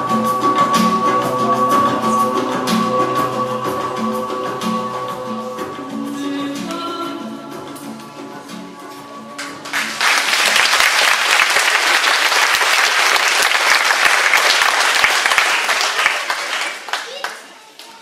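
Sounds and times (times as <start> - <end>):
music: 0.0 - 18.0
audience clapping: 9.4 - 18.0.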